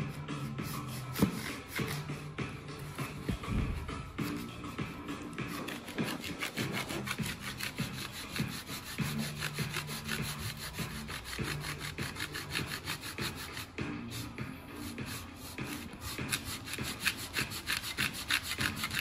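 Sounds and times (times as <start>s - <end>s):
hand saw cutting plywood: 0.8s - 2.2s, 5.4s - 13.7s, 14.8s - 19.0s.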